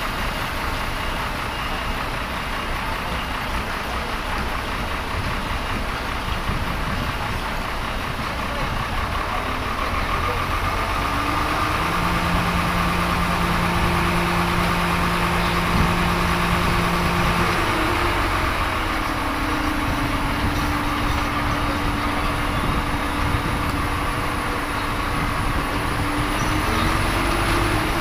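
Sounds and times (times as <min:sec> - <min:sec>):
diesel engine running: 0:00.0 - 0:28.0.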